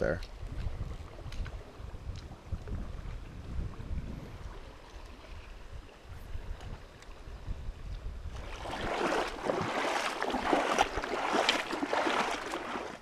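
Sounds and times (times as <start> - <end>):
wind rumble on microphone: 0.0 - 13.0
water splashing from wading: 8.3 - 13.0.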